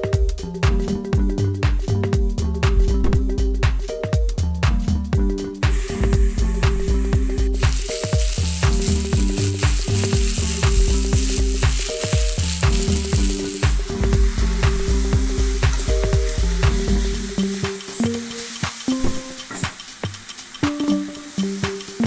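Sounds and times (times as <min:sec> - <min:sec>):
electronic music with beat: 0:00.0 - 0:22.0
vegetables sizzling in pan: 0:05.6 - 0:22.0
spatula stirring: 0:07.5 - 0:22.0.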